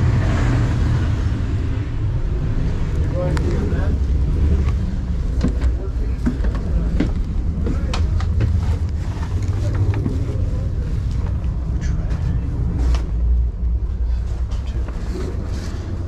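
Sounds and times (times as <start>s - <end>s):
train car low rumble: 0.0s - 16.0s
knocks clicks and rustling: 4.6s - 10.4s.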